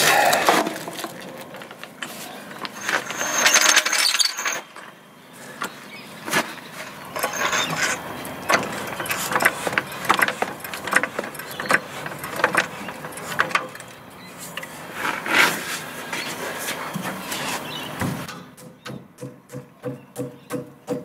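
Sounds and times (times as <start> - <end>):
trolley jack clicks and clanks: 0.2 - 5.0, 5.6 - 15.5.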